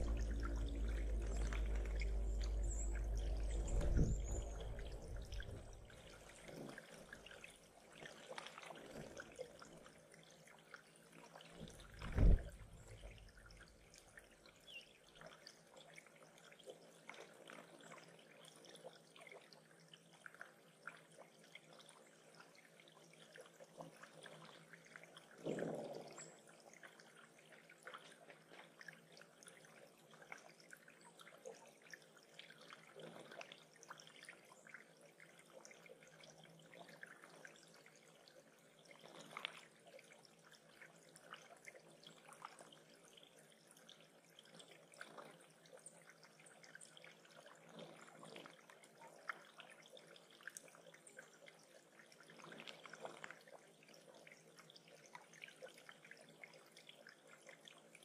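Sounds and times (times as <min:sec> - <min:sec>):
soft thump: 0:00.0 - 0:05.8, 0:12.0 - 0:12.8
water trickling and dripping: 0:00.0 - 0:58.0.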